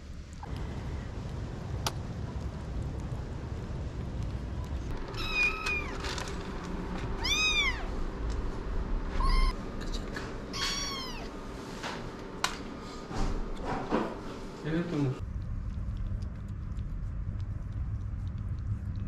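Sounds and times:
kittens meowing: 5.1 - 6.0, 7.2 - 7.9, 9.2 - 9.6, 10.5 - 11.3.

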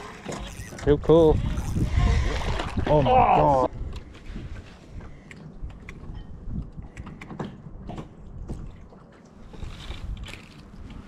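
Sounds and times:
wind rumbling on microphone: 0.0 - 11.0
water slapping against boat: 4.5 - 11.0.

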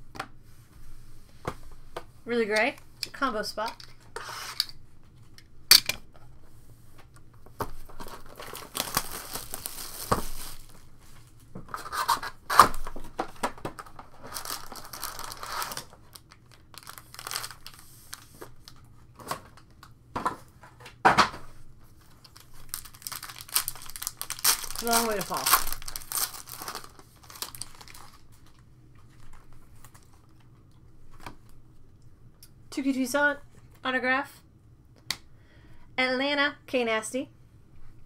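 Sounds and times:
foil packs crinkling: 7.8 - 19.8, 21.9 - 30.4
plastic wrap tearing and crumpling: 7.9 - 11.0, 11.7 - 18.8, 22.0 - 28.6.

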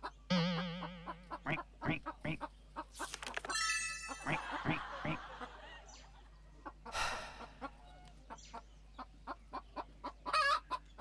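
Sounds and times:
hens clucking: 0.0 - 3.5, 4.1 - 5.7, 6.4 - 11.0.

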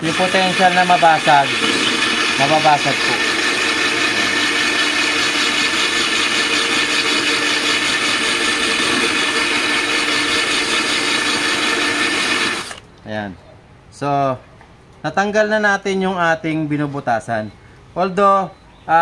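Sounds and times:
cordless drill running: 0.0 - 12.8
hole saw grinding glass: 0.0 - 12.8.

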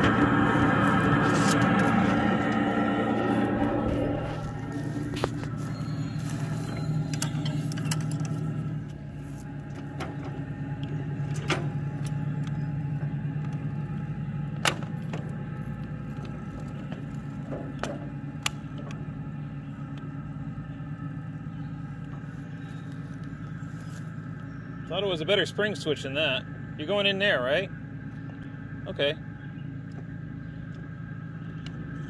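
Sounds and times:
wheels clicking over rail joints: 5.1 - 9.0.

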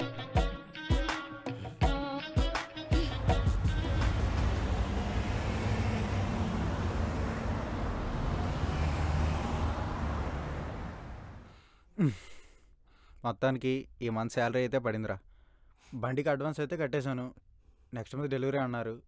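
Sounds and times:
traffic rumble: 3.0 - 11.6.

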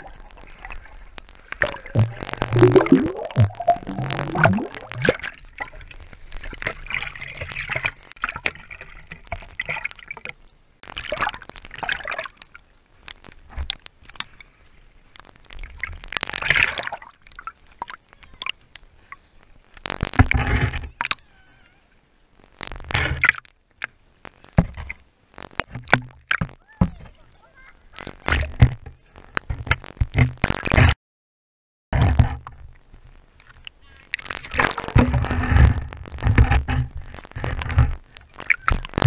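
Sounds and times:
water sloshing and gurgling: 0.0 - 19.2, 33.6 - 39.0
small waves splashing: 0.0 - 22.2.

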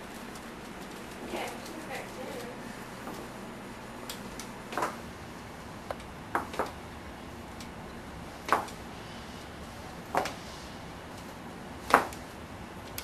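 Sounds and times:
crutches knocking on floor: 11.9 - 12.2.

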